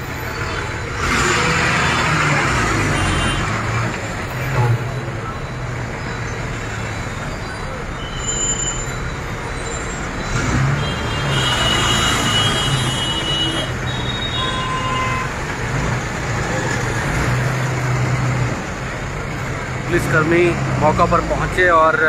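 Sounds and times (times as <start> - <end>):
bus engine running: 0.0 - 22.0
cars moving past: 0.0 - 22.0
brief high-pitched squeal: 7.9 - 10.5.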